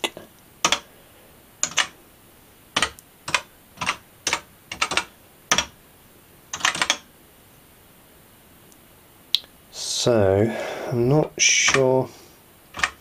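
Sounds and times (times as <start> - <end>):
computer keyboard keys clacking: 0.6 - 0.9, 1.6 - 1.9, 2.8 - 5.7, 6.5 - 7.1, 12.7 - 13.0.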